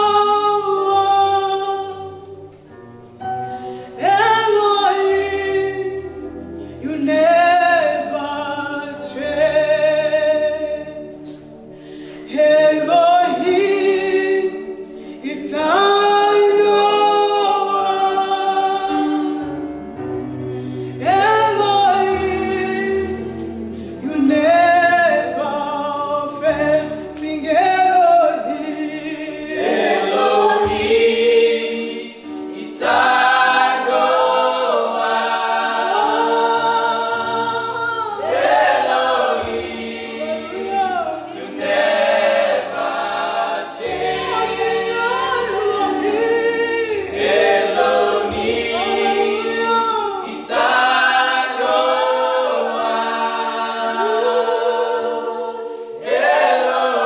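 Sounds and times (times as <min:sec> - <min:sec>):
woman singing lead: 0:00.0 - 0:02.5, 0:12.1 - 0:19.5, 0:20.9 - 0:33.0, 0:35.9 - 0:38.6, 0:39.4 - 0:41.5, 0:43.8 - 0:50.8
backing singers: 0:20.9 - 0:57.0.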